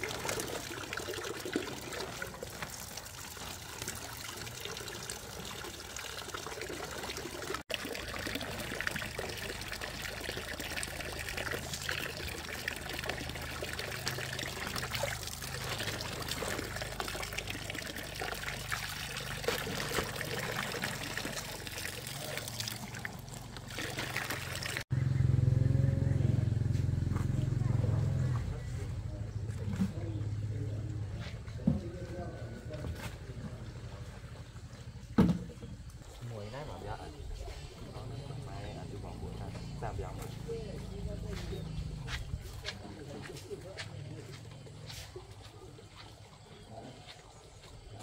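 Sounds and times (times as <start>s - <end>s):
fish splashing in shallow water: 0.0s - 24.8s
water trickling and pouring: 0.0s - 24.9s.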